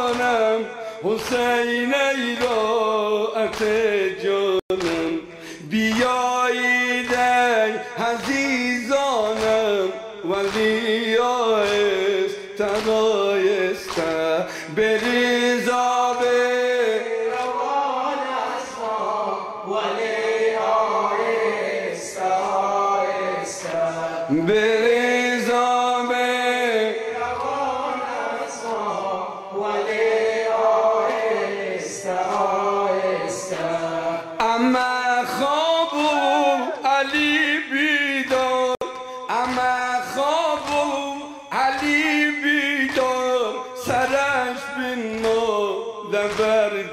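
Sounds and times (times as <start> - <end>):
man chanting into a microphone: 0.0 - 46.9
chest-beating slaps: 4.7 - 7.4, 8.0 - 11.0, 11.6 - 13.1, 13.8 - 15.4, 46.2 - 46.6.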